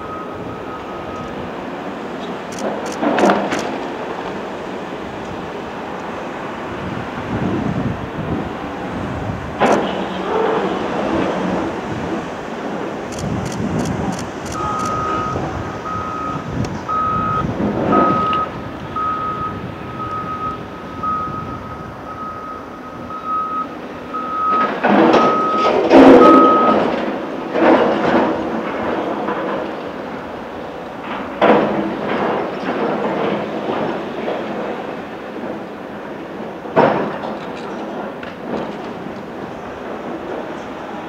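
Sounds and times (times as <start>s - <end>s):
reversing alarm beeping: 0.0s - 1.5s, 13.1s - 26.9s
excavator diesel engine: 0.0s - 41.0s.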